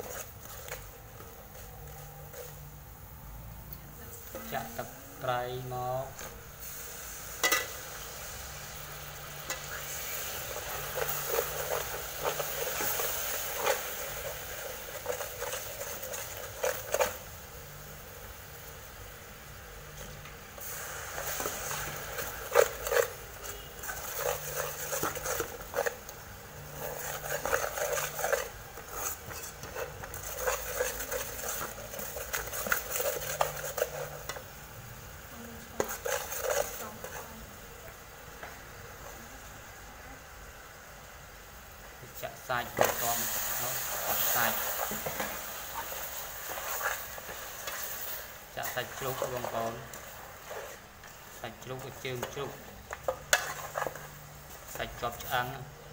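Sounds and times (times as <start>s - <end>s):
metal ladle scraping pan: 0.0s - 0.8s, 6.2s - 7.8s, 9.4s - 17.2s, 20.6s - 34.5s, 35.8s - 37.4s, 42.8s - 54.8s
sauce sizzling and bubbling: 0.0s - 55.9s.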